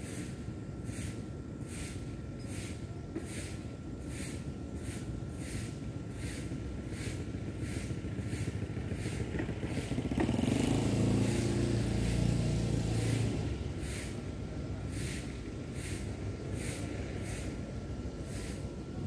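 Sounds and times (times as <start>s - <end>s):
vehicle engine hum passing: 4.8s - 19.0s.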